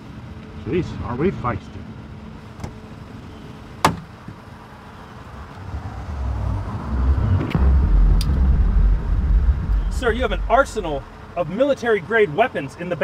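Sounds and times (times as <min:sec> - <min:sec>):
car hatchback latch clicking: 0:03.8 - 0:04.1
deep low rumble: 0:05.3 - 0:11.5.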